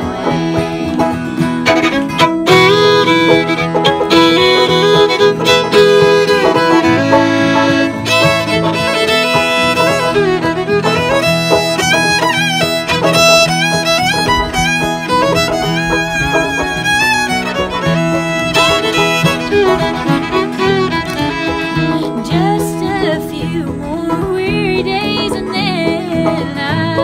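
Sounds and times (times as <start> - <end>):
fiddle playing bowed melody: 0.0 - 27.0.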